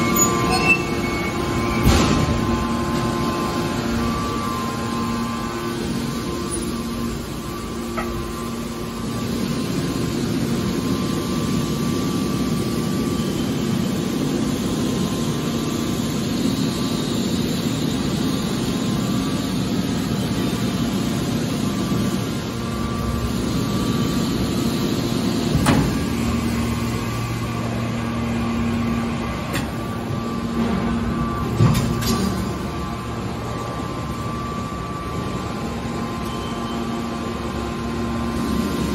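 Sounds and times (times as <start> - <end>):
hydraulic machine hum and hiss: 0.0 - 38.9.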